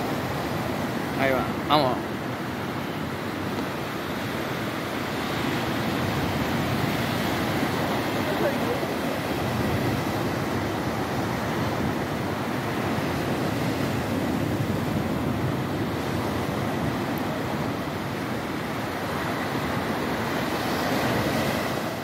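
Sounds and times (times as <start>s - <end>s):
ocean surf breaking: 0.0s - 22.0s.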